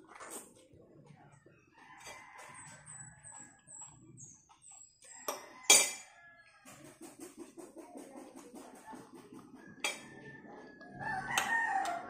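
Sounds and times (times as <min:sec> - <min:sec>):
small bird chirping: 0:02.6 - 0:05.6.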